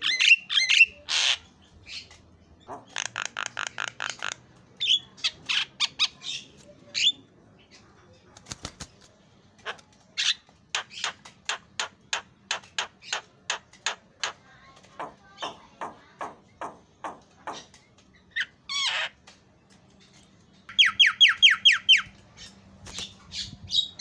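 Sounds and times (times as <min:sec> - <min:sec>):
sharp bird clicks: 0:01.9 - 0:04.4, 0:09.6 - 0:14.4.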